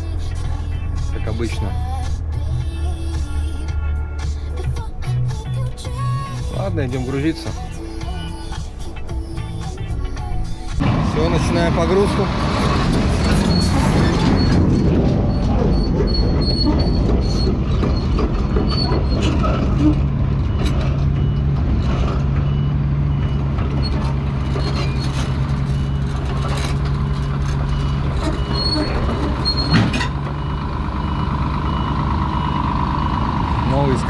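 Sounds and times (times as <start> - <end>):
heavy diesel machinery running: 0.0 - 34.0
metal knocks: 12.8 - 22.5.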